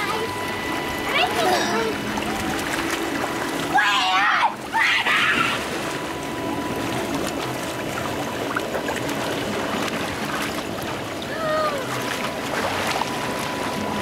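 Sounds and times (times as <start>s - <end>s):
running water rushing: 0.0s - 14.0s
water splashing in pool: 0.0s - 14.0s
child calling: 11.3s - 12.0s.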